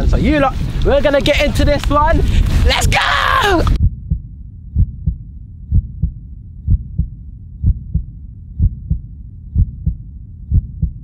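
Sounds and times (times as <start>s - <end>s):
low rumble: 3.6s - 11.0s
heartbeat thumps: 3.8s - 11.0s.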